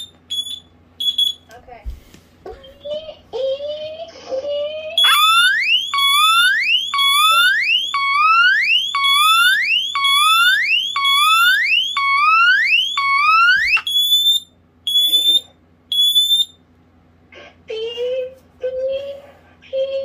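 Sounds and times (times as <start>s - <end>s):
high-pitched alarm beeping: 0.0s - 1.5s, 5.0s - 16.6s
smoke alarm siren sweeping up: 5.0s - 16.6s.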